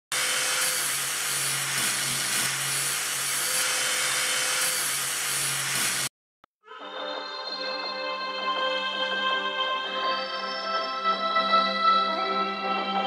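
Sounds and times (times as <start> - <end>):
angle grinder grinding metal: 0.1 - 6.1.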